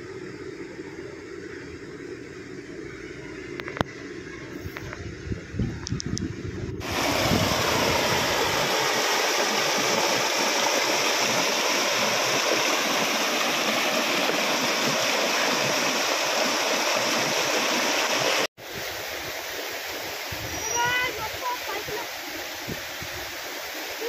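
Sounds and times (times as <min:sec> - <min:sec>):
water rushing over rocks: 0:06.8 - 0:24.0.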